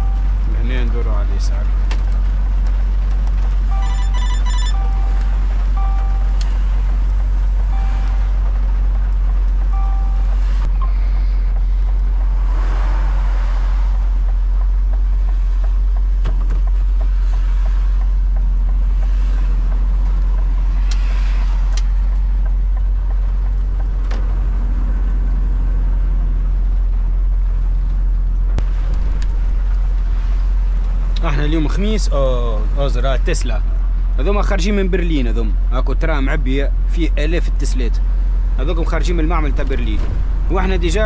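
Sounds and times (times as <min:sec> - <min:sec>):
wet tyres on road: 0:00.0 - 0:35.8
truck engine drone: 0:00.0 - 0:41.0
passing traffic spray: 0:10.3 - 0:14.3.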